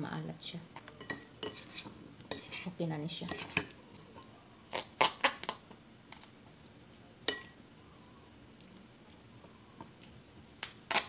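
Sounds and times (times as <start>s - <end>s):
spoon clinking against glass bowl: 7.3s - 7.6s.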